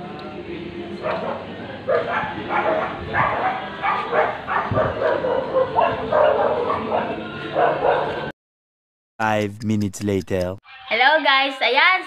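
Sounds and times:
dog barking: 0:01.0 - 0:08.3.

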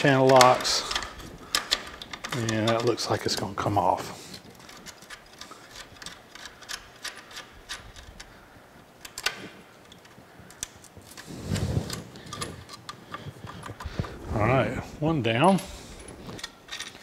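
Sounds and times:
small metallic clicks and ticks: 0:04.3 - 0:11.3.

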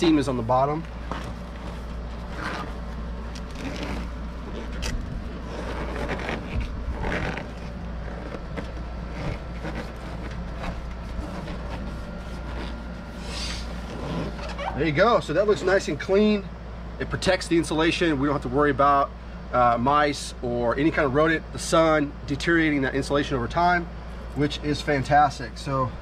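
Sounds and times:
steady low hum: 0:00.0 - 0:26.0
plastic scraping and rustling: 0:01.0 - 0:13.2.

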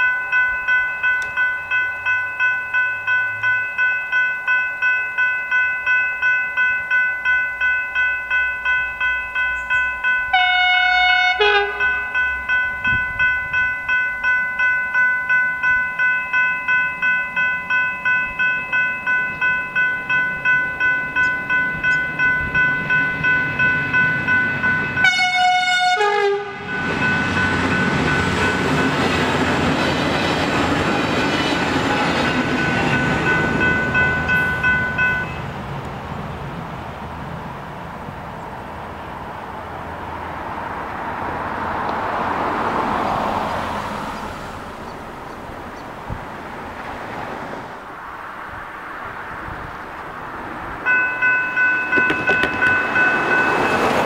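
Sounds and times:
level crossing bells ringing: 0:00.0 - 0:35.5, 0:50.8 - 0:54.0
train rushing past: 0:07.3 - 0:54.0
train horn blasts: 0:10.3 - 0:12.3, 0:25.0 - 0:26.8.

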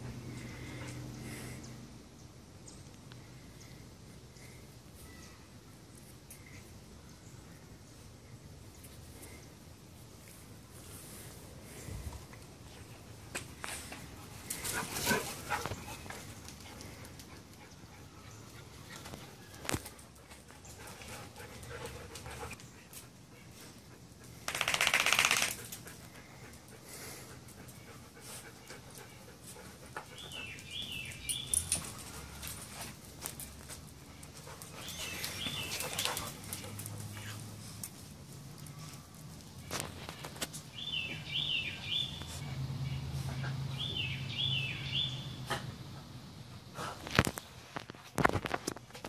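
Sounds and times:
dogs clicking and rustling: 0:12.2 - 0:26.8, 0:27.4 - 0:40.7
loud rapid rattling burst: 0:24.5 - 0:25.6.

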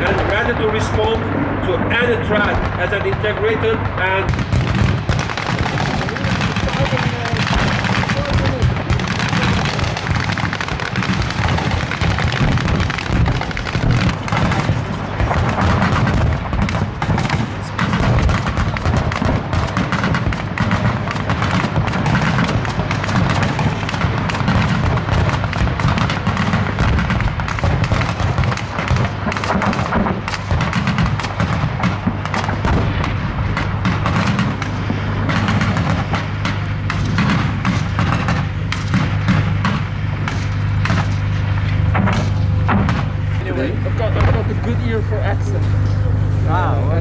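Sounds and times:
rapid autocannon fire: 0:00.0 - 0:46.3.

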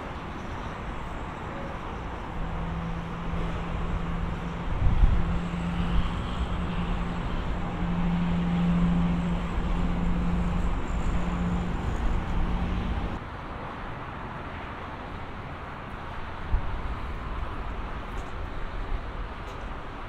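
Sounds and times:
low engine hum: 0:00.0 - 0:13.2
road traffic noise: 0:00.0 - 0:20.0.

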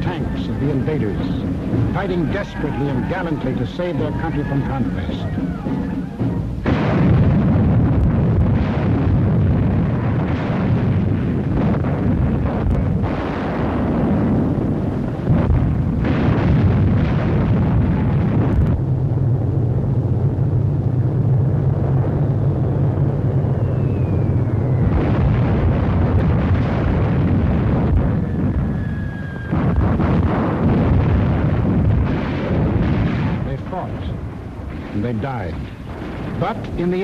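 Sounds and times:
rumbling explosions: 0:00.0 - 0:37.0
gunfire: 0:05.2 - 0:18.6, 0:29.3 - 0:37.0
falling whistle: 0:23.4 - 0:25.0, 0:28.7 - 0:29.7.

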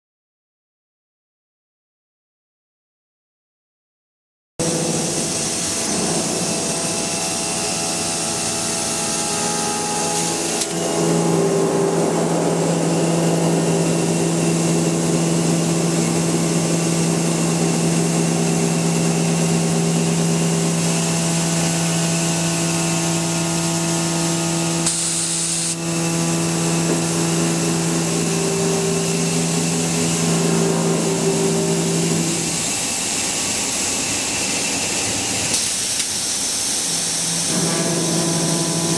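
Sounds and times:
steady pitched tone: 0:04.6 - 0:19.8, 0:25.8 - 0:32.8
milling machine cutting: 0:04.6 - 0:33.2, 0:37.1 - 0:38.9.

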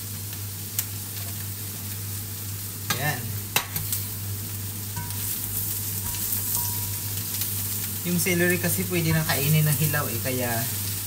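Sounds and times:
vegetables sizzling in oil: 0:00.0 - 0:11.0
steady low hum: 0:03.0 - 0:11.0.

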